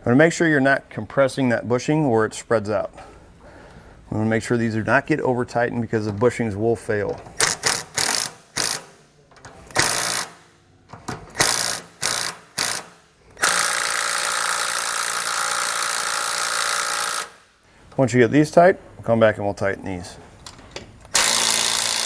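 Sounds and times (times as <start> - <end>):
cordless power ratchet running: 11.4 - 17.4, 21.1 - 22.0.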